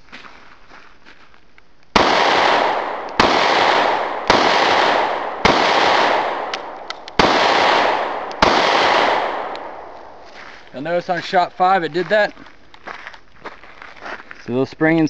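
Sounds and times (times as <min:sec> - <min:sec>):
pistol shots echoing: 0:02.0 - 0:10.3
faint pistol clicks: 0:06.3 - 0:07.3, 0:08.1 - 0:10.1.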